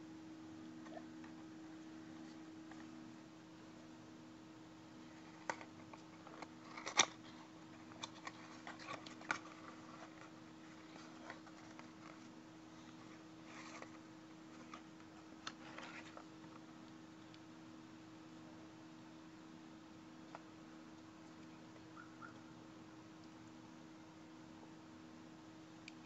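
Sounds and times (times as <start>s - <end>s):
steady low hum: 0.0s - 26.0s
plastic packet crinkling: 5.3s - 12.3s.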